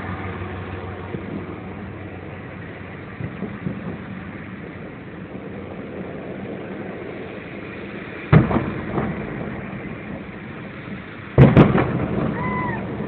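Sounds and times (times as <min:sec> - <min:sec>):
idling car engines: 0:00.0 - 0:13.0
distant firework boom: 0:08.2 - 0:13.0.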